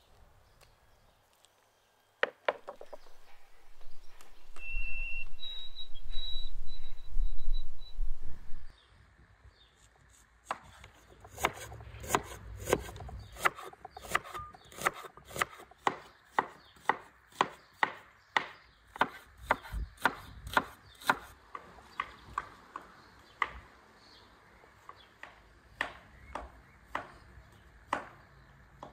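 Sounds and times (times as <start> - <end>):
knife chopping on wooden board: 10.5 - 21.3.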